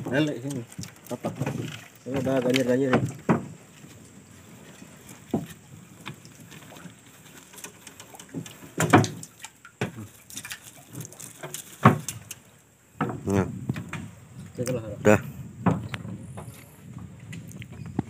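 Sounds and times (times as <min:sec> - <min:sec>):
water dripping from a net: 0:00.0 - 0:12.8
knocks on wooden planks: 0:01.2 - 0:03.6, 0:08.3 - 0:10.0, 0:11.8 - 0:12.2, 0:13.0 - 0:14.1, 0:15.6 - 0:16.5.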